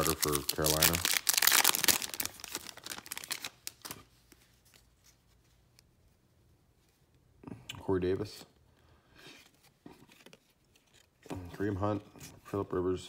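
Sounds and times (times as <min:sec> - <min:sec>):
foil wrapper crinkling: 0:00.0 - 0:04.0.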